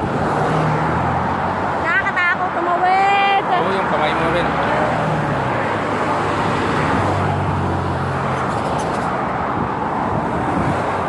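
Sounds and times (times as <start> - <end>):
cars driving past: 0.0 - 11.0.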